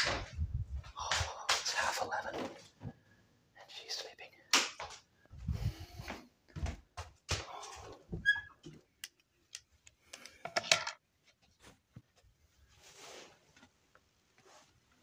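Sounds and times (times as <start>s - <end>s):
rustling: 11.2s - 15.0s.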